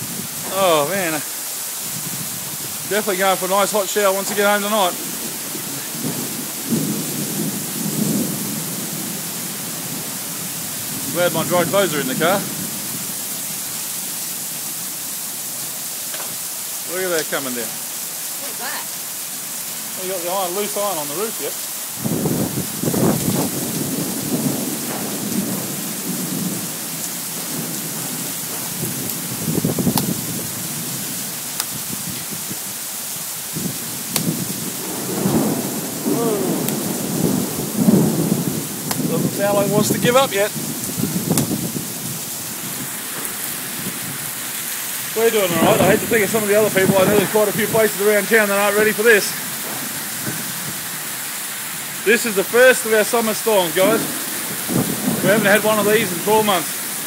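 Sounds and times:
strong wind: 0.0 - 13.8, 22.0 - 52.2, 53.7 - 57.0
pouring rain hiss: 0.0 - 57.0
low thunder rumble: 1.9 - 13.2, 22.0 - 32.6, 33.5 - 52.5, 53.6 - 57.0.

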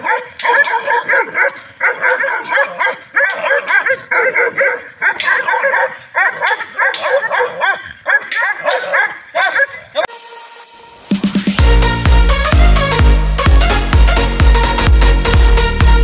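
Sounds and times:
dog whining and yipping: 0.0 - 10.1.

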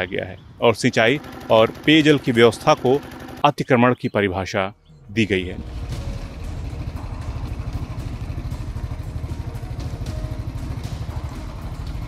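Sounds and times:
engine idling: 1.0 - 3.5, 5.0 - 12.0.

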